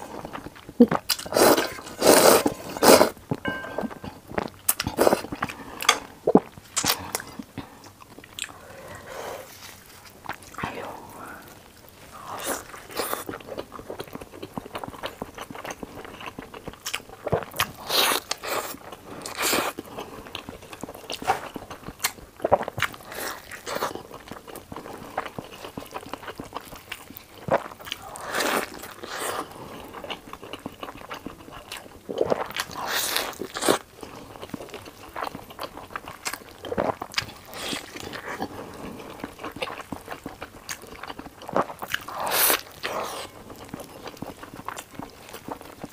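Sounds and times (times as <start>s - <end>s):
biting and chewing food: 11.7s - 45.9s.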